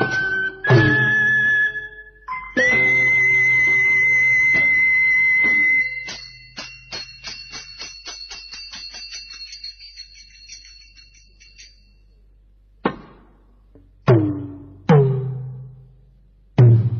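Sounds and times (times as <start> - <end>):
small cymbals ringing roll: 5.9 - 12.6.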